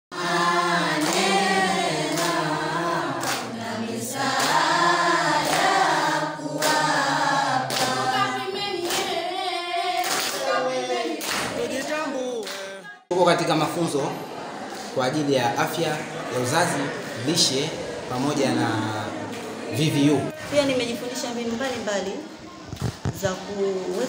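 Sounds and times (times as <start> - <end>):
group singing without instruments: 0.1 - 13.1.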